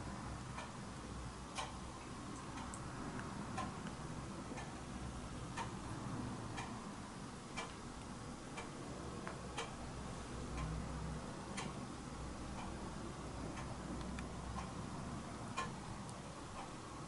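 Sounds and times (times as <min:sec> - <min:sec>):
clock ticking: 0:00.4 - 0:05.9, 0:06.5 - 0:06.8, 0:07.5 - 0:07.8, 0:09.4 - 0:16.8.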